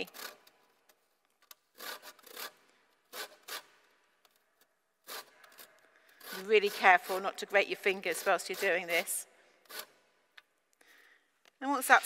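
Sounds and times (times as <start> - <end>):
grater scraping zest: 5.1 - 9.9.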